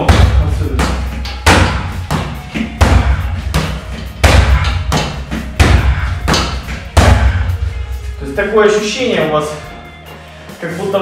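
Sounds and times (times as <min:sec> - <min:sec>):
punches and kicks on punching bag: 0:00.0 - 0:07.6.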